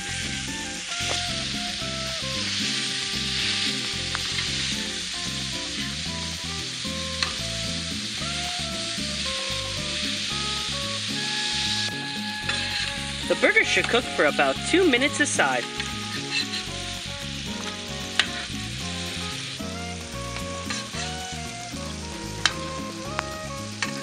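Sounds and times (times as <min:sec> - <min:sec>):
background music: 0:00.0 - 0:24.0
burger patties sizzling on griddle: 0:00.0 - 0:24.0.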